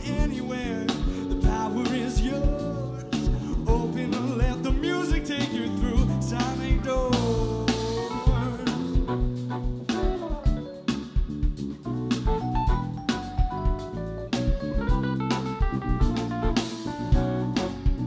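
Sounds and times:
man singing lead vocal: 0:00.0 - 0:09.4
bass: 0:00.0 - 0:18.0
drum kit beat: 0:00.0 - 0:18.0
keyboards: 0:00.0 - 0:18.0
electric guitar: 0:00.8 - 0:18.0.

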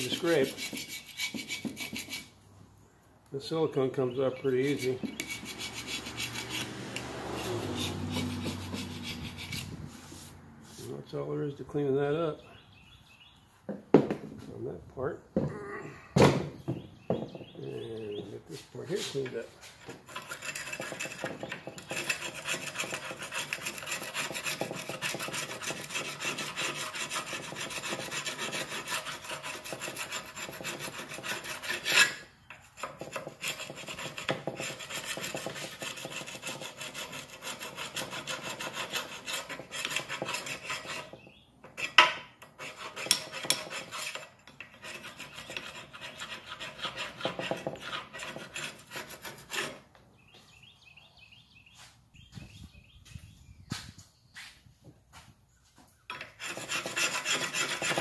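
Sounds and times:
putty knife scraping metal: 0:00.0 - 0:02.3, 0:04.2 - 0:09.8, 0:19.0 - 0:49.9, 0:56.1 - 0:58.0.

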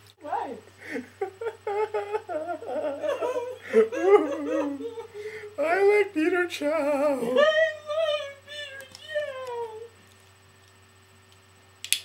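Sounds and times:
faint low hum: 0:00.0 - 0:12.0
man laughing hard: 0:00.8 - 0:06.0.

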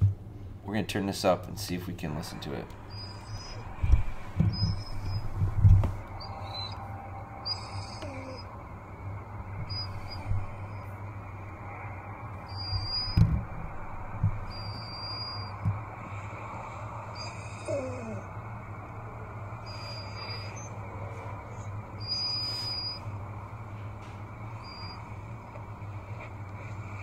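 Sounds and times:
steady hum: 0:00.0 - 0:27.0
dog whining: 0:02.8 - 0:13.7, 0:14.3 - 0:18.5, 0:19.6 - 0:23.3, 0:24.4 - 0:25.4.

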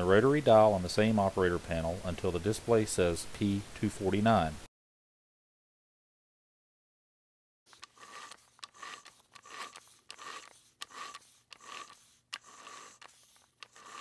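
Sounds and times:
rotary dial scraping and clicking: 0:07.7 - 0:14.0.

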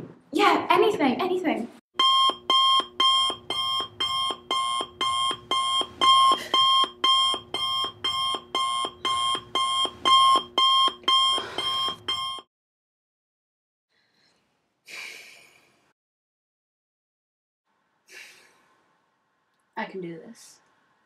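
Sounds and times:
phone alarm beeping: 0:02.0 - 0:12.5.

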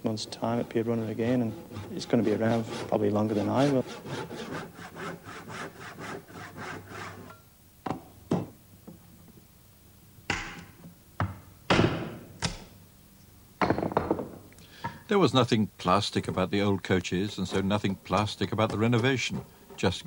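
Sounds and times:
tool strokes on wood: 0:00.0 - 0:07.3
sharp knocks on wood: 0:10.3 - 0:12.7, 0:13.6 - 0:14.4.

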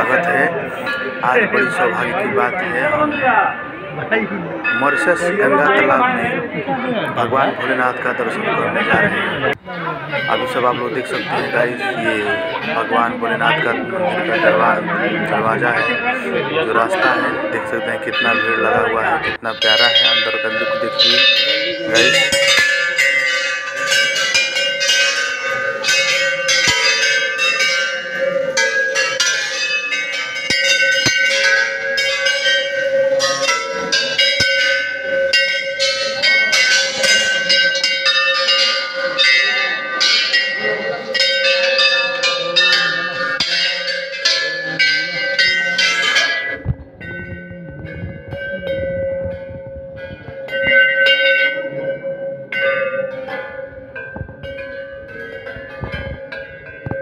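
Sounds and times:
metal bells struck by hand: 0:00.0 - 0:06.6, 0:10.1 - 0:57.0.

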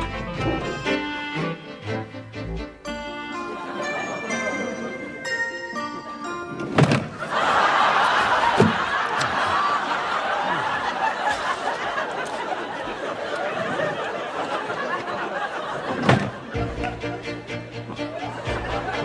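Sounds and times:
studio audience laughing: 0:03.4 - 0:05.1, 0:07.1 - 0:19.0.

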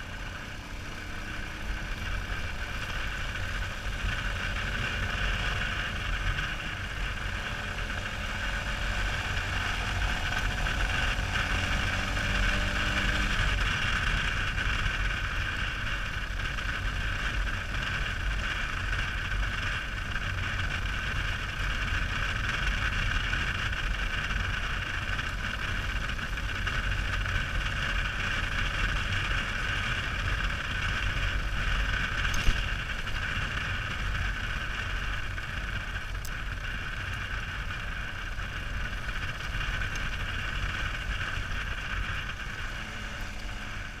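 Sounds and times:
motorcycle engine and road noise: 0:00.0 - 0:44.0.

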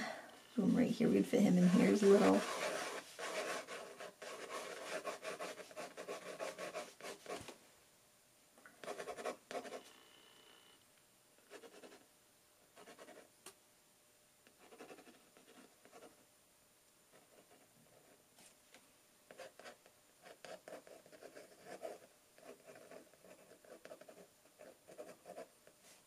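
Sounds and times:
pen nib scratching on paper: 0:01.7 - 0:07.4, 0:19.3 - 0:25.5.

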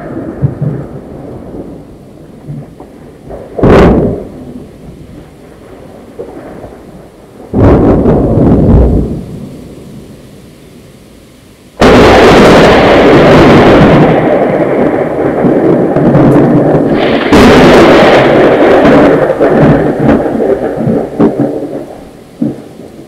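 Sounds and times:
thunder clap and rumble: 0:00.0 - 0:10.3, 0:11.8 - 0:23.0.

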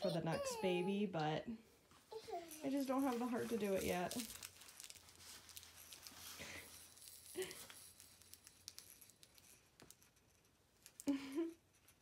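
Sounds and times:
plastic toys rustling and clicking: 0:02.0 - 0:12.0.

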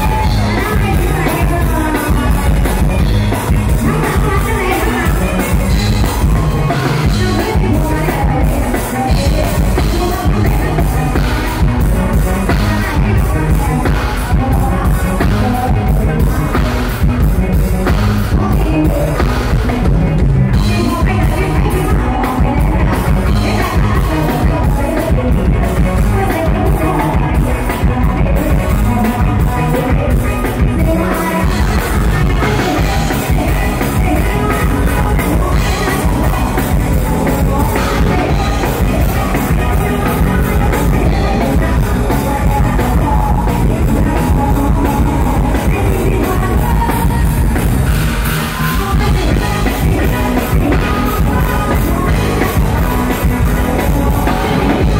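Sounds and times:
live band music over sound system: 0:00.0 - 0:54.9
woman singing: 0:00.0 - 0:54.9.

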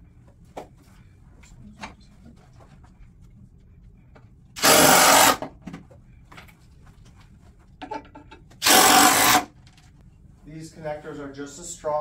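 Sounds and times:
power driver whirring: 0:04.6 - 0:05.4, 0:08.6 - 0:09.5.

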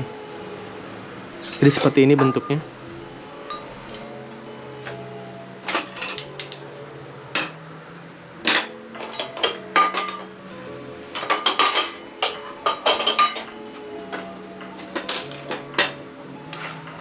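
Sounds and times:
metal cookware clinking: 0:03.5 - 0:04.2, 0:05.6 - 0:06.6, 0:08.5 - 0:10.3, 0:11.2 - 0:13.6.

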